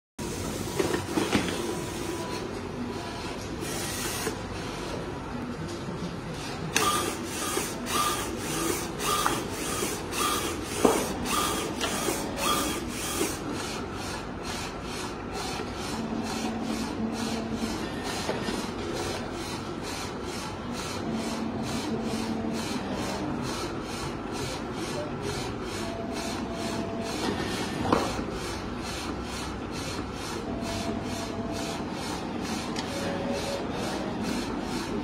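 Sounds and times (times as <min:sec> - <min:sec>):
short motor whines and clicks: 0:06.8 - 0:07.1.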